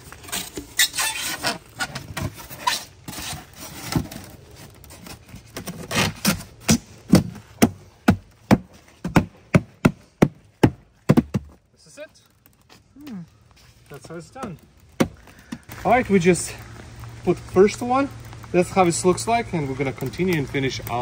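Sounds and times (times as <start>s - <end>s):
foam board scraping and squeaking: 0.0s - 7.6s, 11.0s - 16.0s
sharp thumps: 5.6s - 11.6s.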